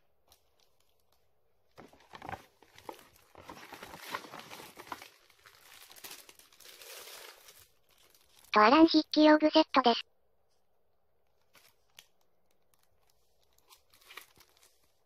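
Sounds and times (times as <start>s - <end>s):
plastic bag rustling: 0.3s - 8.5s, 11.4s - 15.0s.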